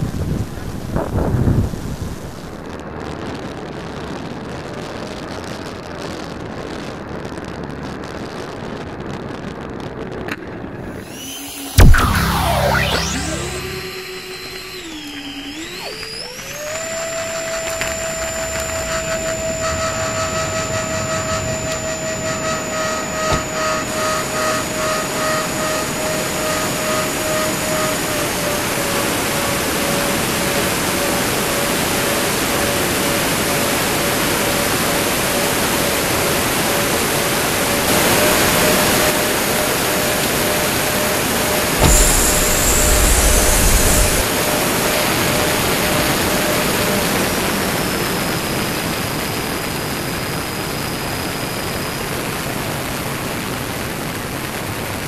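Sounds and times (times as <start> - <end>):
model jet motors whining: 10.8 - 50.4
rush of air: 41.8 - 44.3.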